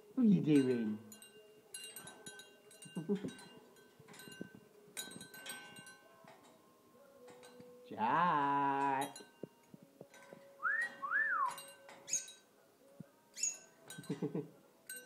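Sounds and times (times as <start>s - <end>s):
small bell clinking: 0.4s - 15.0s
rising and falling whistles: 10.6s - 12.3s.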